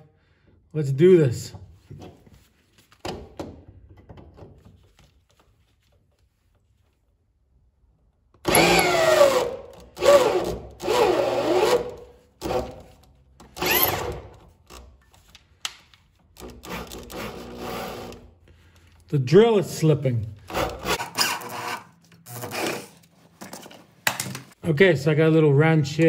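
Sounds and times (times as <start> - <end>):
air drill whine: 8.5 - 12.7.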